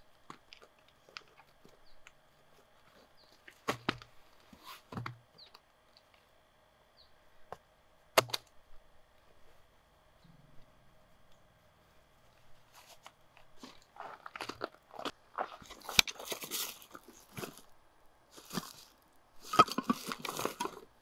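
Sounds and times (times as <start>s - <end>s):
sharp clicks: 8.2s - 8.6s.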